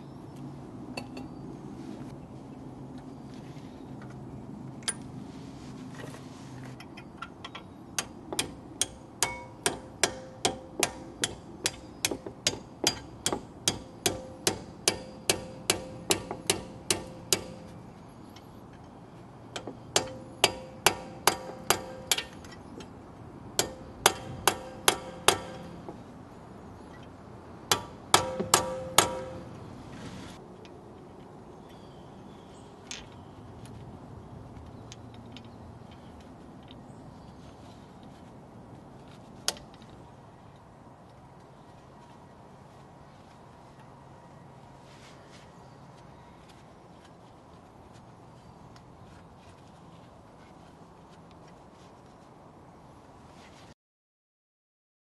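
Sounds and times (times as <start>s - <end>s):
hammer tapping on metal punch: 7.6s - 17.7s, 19.6s - 22.4s, 23.6s - 25.9s, 27.7s - 29.5s.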